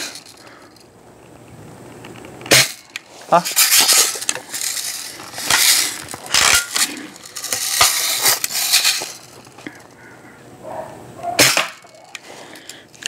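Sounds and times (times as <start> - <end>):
metallic clinks and rattles: 0.0 - 0.9, 2.5 - 10.0
sharp snap: 11.4 - 11.9.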